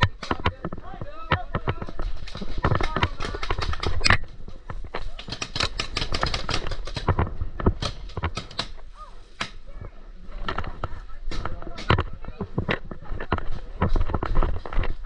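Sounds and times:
paintballs smacking bunkers: 0.0 - 9.7
paintball markers firing: 5.2 - 8.8.

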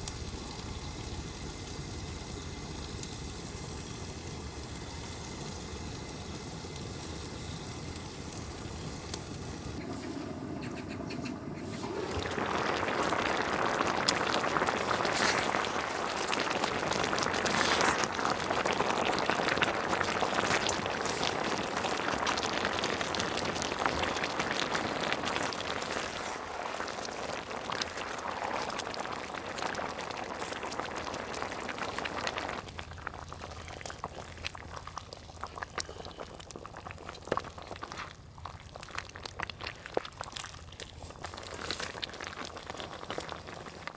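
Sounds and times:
low hiss: 0.0 - 10.4
food sizzling and bubbling: 0.0 - 43.9.

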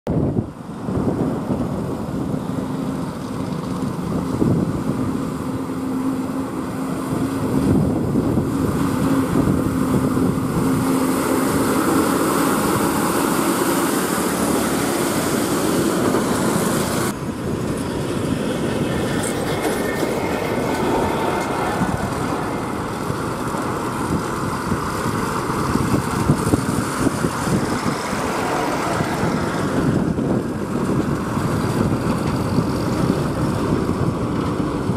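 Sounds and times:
heavy trucks passing: 0.1 - 34.9
tyre and road noise: 0.1 - 34.9.

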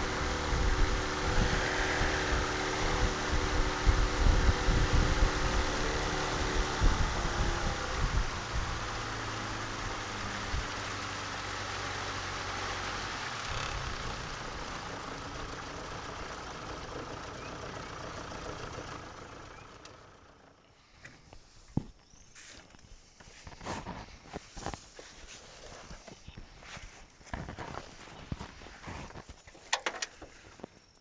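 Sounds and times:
outboard motor running: 0.0 - 20.6.

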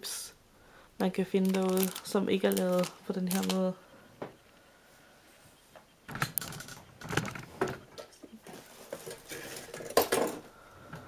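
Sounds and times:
plastic packaging rustling and clicking: 1.3 - 3.7, 6.2 - 10.4.

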